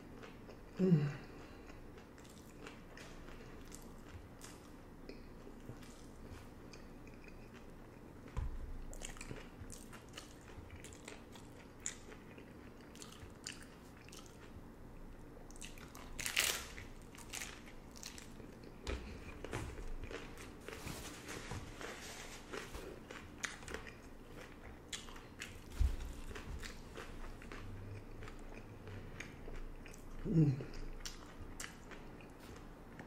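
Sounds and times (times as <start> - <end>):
crunchy chewing: 1.5 - 14.7, 22.3 - 33.0.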